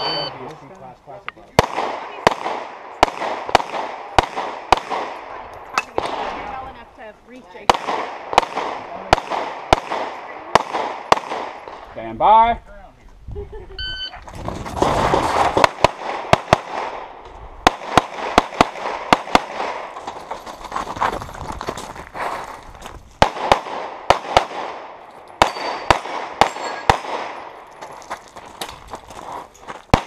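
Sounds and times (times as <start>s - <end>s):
pistol shots: 1.6s - 6.5s, 7.6s - 11.9s, 15.1s - 20.0s, 23.2s - 27.7s.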